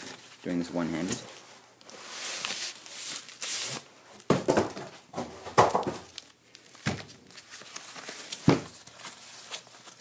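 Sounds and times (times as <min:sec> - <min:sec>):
cardboard and paper rustling: 0:00.0 - 0:10.0.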